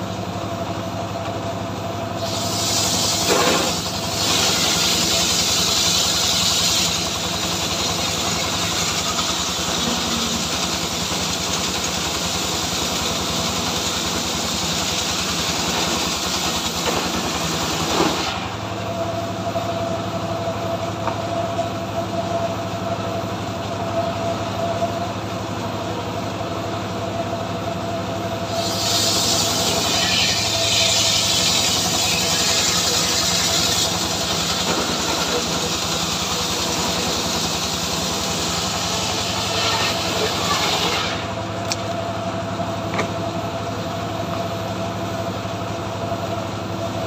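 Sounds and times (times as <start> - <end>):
engine running steadily: 0.0 - 47.0
saw blade whine: 0.0 - 47.0
saw cutting log with rasping hiss: 2.1 - 18.8, 28.4 - 41.8.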